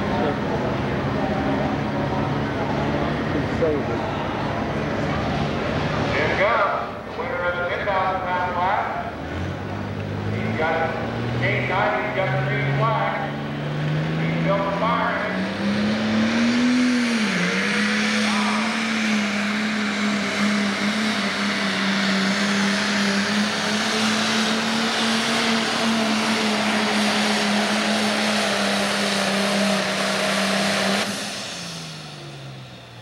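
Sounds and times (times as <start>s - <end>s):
diesel tractor engine under load: 0.0s - 33.0s.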